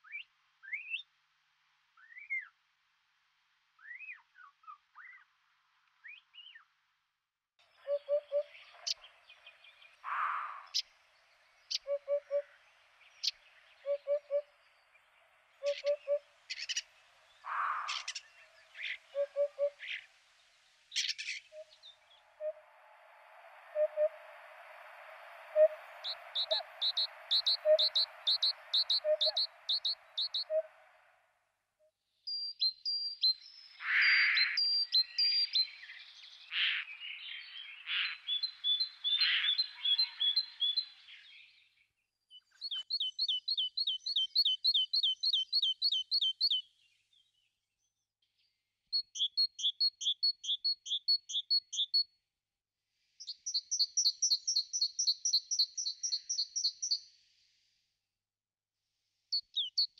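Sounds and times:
songbirds singing: 0.0 - 1.1, 3.8 - 5.4, 7.6 - 31.2, 32.1 - 52.1, 53.1 - 57.2, 59.3 - 59.9
harsh bird calls: 15.6 - 20.1, 23.7 - 31.1, 33.7 - 41.5.

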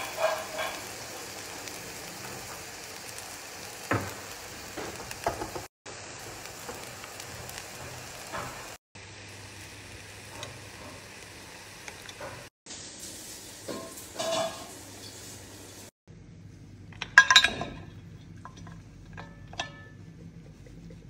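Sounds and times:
spatula scraping pan: 0.0 - 1.2
noodles sizzling in pan: 0.0 - 15.9.

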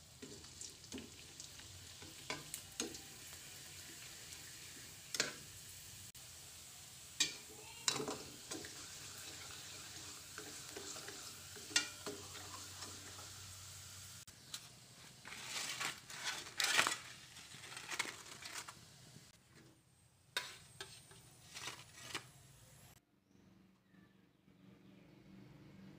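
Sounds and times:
cracker sizzling in a wok: 0.0 - 19.4
metal spatula scraping pan: 20.4 - 22.2.

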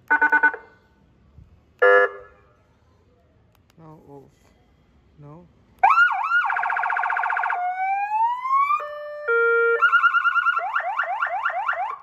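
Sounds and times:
electronic siren changing tones: 5.8 - 12.0.

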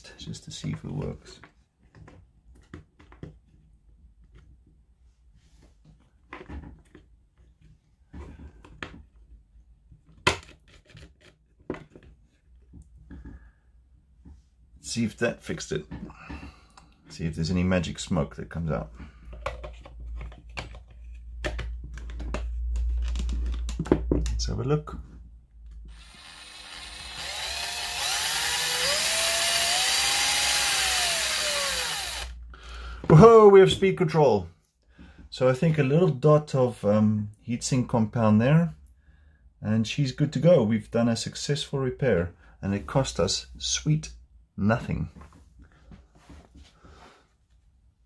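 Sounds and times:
clicks and knocks of plastic parts: 0.7 - 4.6, 19.2 - 25.8
cordless drill motor whine: 25.9 - 32.4.

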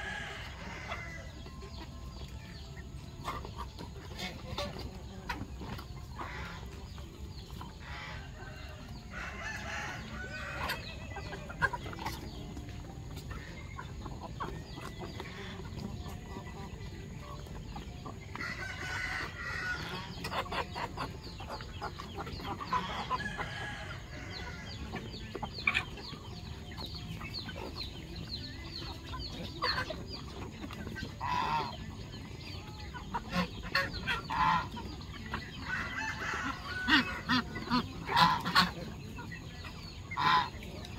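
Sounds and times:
chickens clucking and calling: 0.0 - 40.9.

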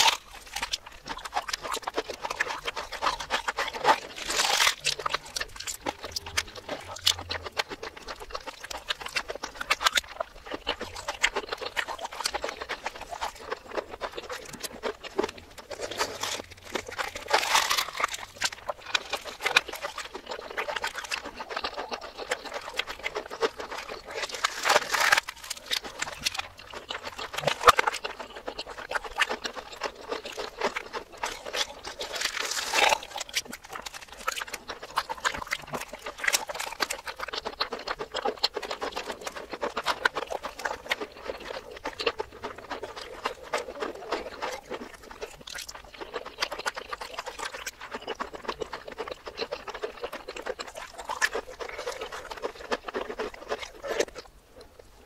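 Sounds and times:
reversed chewing crunches: 0.0 - 55.0.

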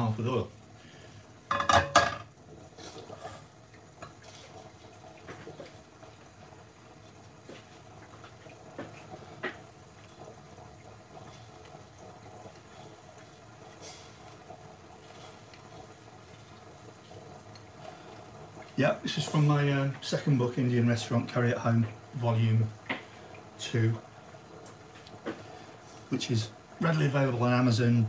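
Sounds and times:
frying pan clattering on grate: 1.5 - 2.4
faint ticks of heating oil: 3.6 - 4.2, 4.9 - 27.0.

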